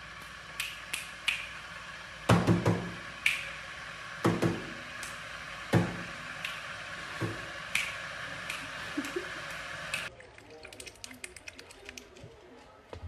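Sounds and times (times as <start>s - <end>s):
finger snaps: 0.2s - 1.5s, 3.2s - 3.5s, 6.4s - 6.6s, 7.7s - 8.7s.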